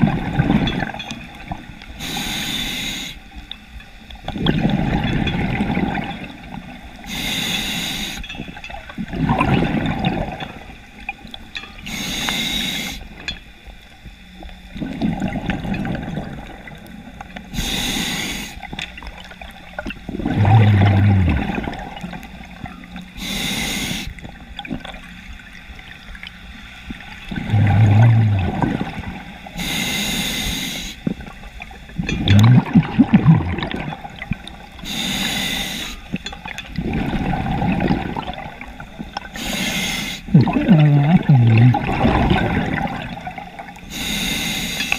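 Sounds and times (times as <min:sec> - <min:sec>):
gurgling exhaled bubbles: 0:00.0 - 0:01.8, 0:04.2 - 0:07.0, 0:08.7 - 0:11.4, 0:14.7 - 0:17.2, 0:19.0 - 0:22.8, 0:26.9 - 0:29.6, 0:31.0 - 0:34.8, 0:36.4 - 0:39.5, 0:40.3 - 0:43.9
diver inhaling through regulator: 0:02.0 - 0:03.2, 0:07.0 - 0:08.3, 0:11.8 - 0:13.1, 0:17.5 - 0:18.7, 0:23.1 - 0:24.2, 0:27.3 - 0:31.1, 0:34.8 - 0:36.2, 0:39.3 - 0:41.9, 0:43.8 - 0:44.9.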